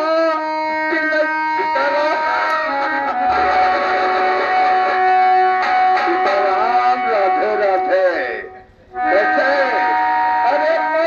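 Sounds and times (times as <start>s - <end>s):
amplified stage band melody: 1.3s - 8.0s.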